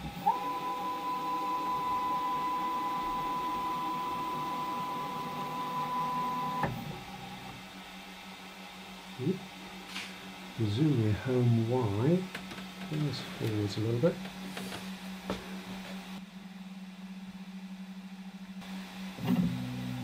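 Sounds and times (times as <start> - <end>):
stepper motors whining: 0.0 - 7.7.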